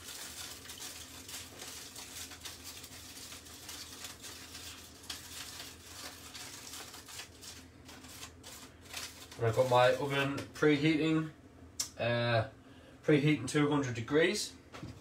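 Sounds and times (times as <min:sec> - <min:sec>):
aluminium foil crinkling: 0:00.0 - 0:10.4.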